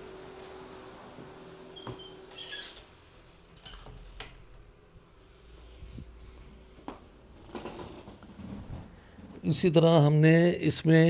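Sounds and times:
faint squeaks and scrapes: 0:01.8 - 0:04.3.

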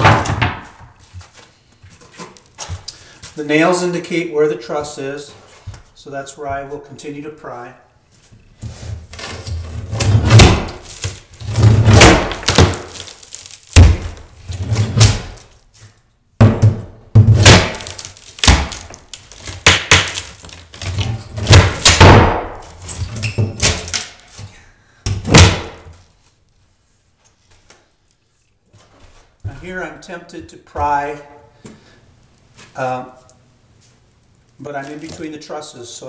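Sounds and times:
board cracking and thudding: 0:00.0 - 0:01.0, 0:09.0 - 0:15.6, 0:16.4 - 0:24.5, 0:25.1 - 0:26.0.

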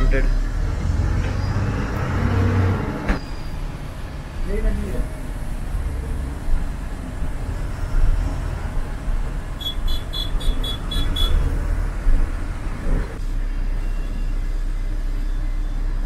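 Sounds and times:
bus engine low rumble: 0:00.0 - 0:16.0.

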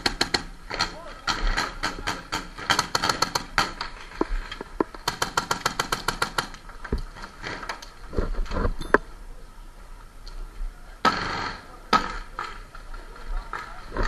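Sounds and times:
paintball markers firing sharp pops: 0:00.0 - 0:03.9.

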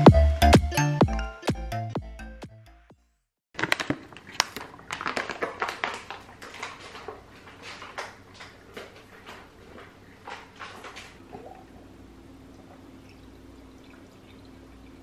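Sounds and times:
coffee dripping into carafe: 0:11.2 - 0:15.0.

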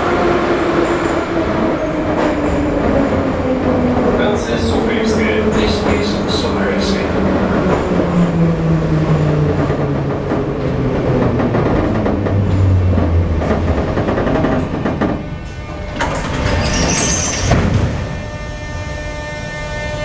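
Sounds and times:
train wheels rumbling: 0:00.0 - 0:19.6.

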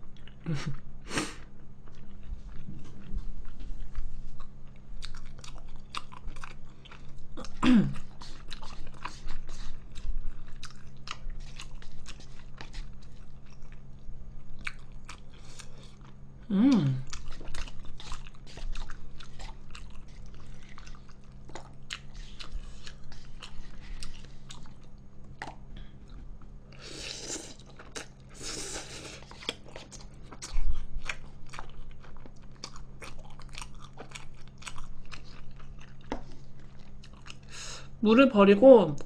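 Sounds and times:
low electrical hum: 0:00.0 - 0:39.0
wet chewing and mouth clicks: 0:01.8 - 0:16.2, 0:17.0 - 0:37.5
slurping noodles: 0:26.8 - 0:27.7.

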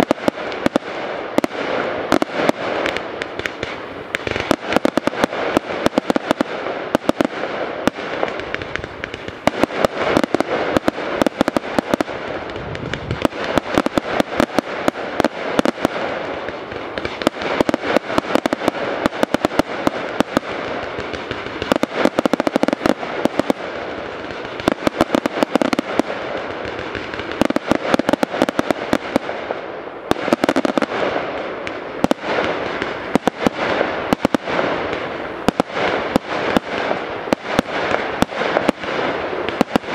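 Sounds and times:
fireworks bursts and bangs: 0:00.0 - 0:39.9
fireworks hissing crackle: 0:00.0 - 0:39.9.

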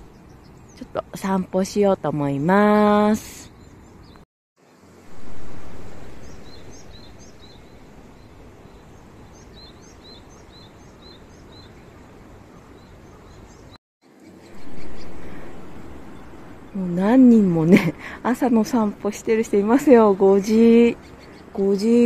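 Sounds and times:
low outdoor rumble: 0:04.8 - 0:09.9, 0:14.4 - 0:22.0
small bird chirping: 0:06.0 - 0:17.0.

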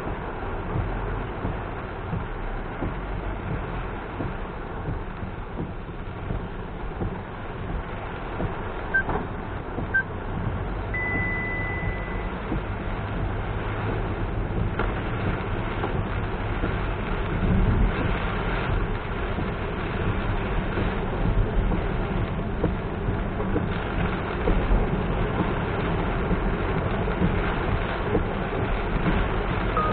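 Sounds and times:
car engine and tyres rumbling: 0:00.0 - 0:29.9
rain hissing: 0:00.0 - 0:29.9
long steady beep: 0:10.9 - 0:12.3
short high beeps: 0:11.0 - 0:12.3.

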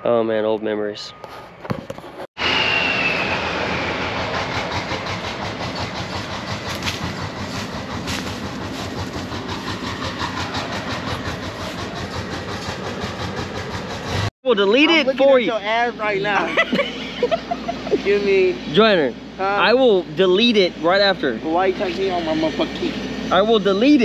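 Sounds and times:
high whine sliding down: 0:02.4 - 0:05.4
heavy vehicle clattering: 0:04.3 - 0:14.3.

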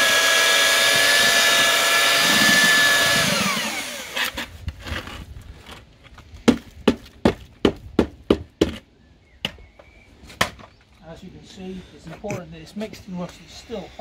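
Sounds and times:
mixer motor winding down: 0:00.0 - 0:04.4.

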